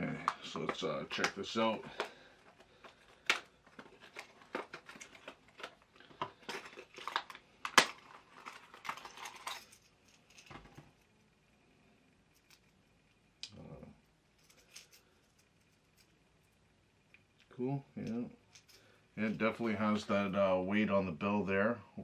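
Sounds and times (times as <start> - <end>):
plastic packaging crinkling: 1.1 - 10.6.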